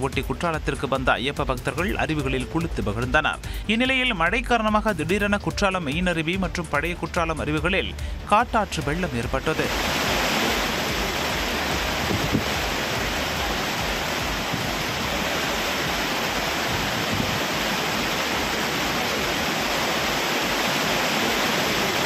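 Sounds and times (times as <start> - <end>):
waterfall rushing: 7.8 - 22.0.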